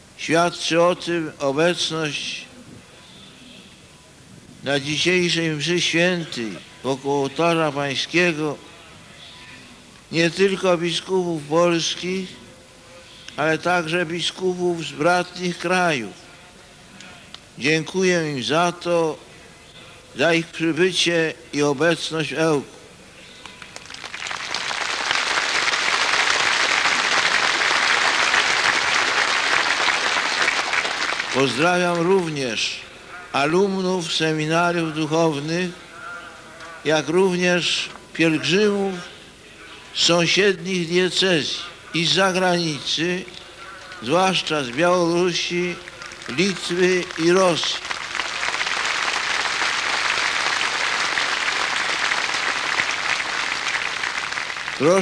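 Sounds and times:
large crowd applauding: 23.5 - 32.1, 45.8 - 55.0.

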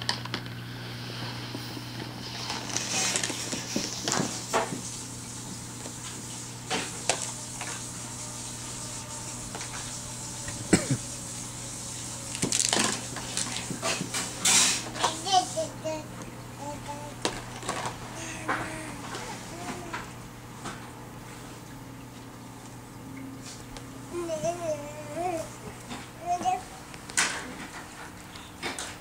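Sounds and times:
plastic toys clicking and clattering: 12.3 - 15.2.

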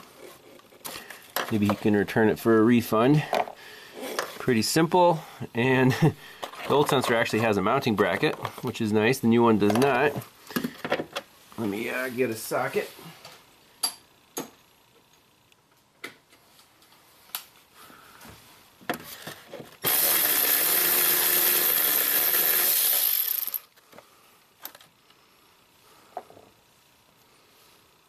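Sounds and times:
electric ratchet running: 19.8 - 23.8.

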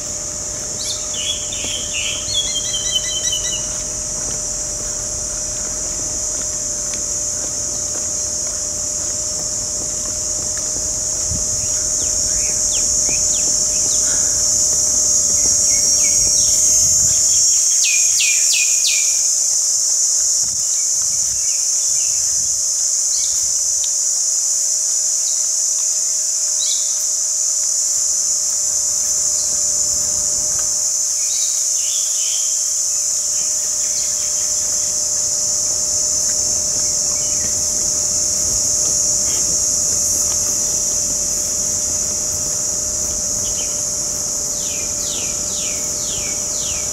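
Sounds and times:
high-pitched insect drone: 0.0 - 46.9
birds chirping: 0.5 - 4.3.

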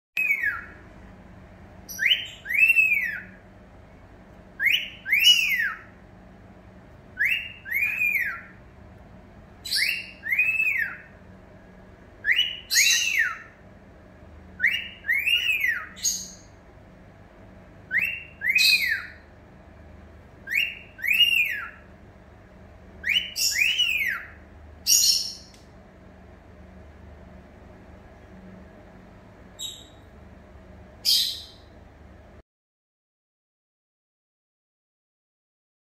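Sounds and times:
cockatiel wolf whistle: 4.6 - 5.9, 7.2 - 8.5, 9.7 - 11.0, 12.2 - 13.5, 14.6 - 16.4, 17.9 - 19.2, 20.4 - 21.8, 23.0 - 24.4.

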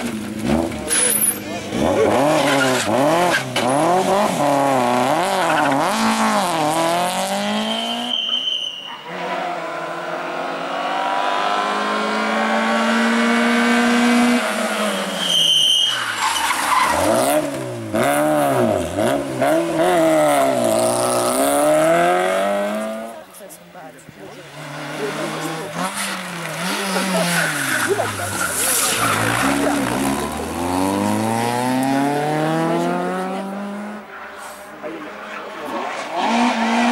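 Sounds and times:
rally car engine revving: 0.0 - 8.4, 9.0 - 23.4, 24.3 - 36.9
car sliding on loose gravel: 24.3 - 31.8.

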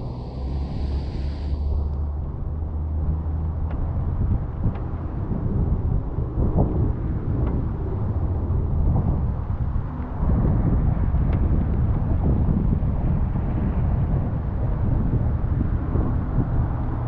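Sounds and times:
car driving rumble: 0.0 - 13.8
wind buffeting microphone: 0.0 - 17.0.

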